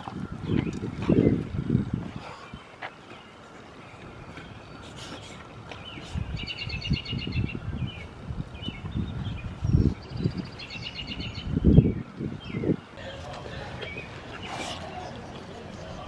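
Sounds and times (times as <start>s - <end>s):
songbird trilling: 5.8s - 13.0s.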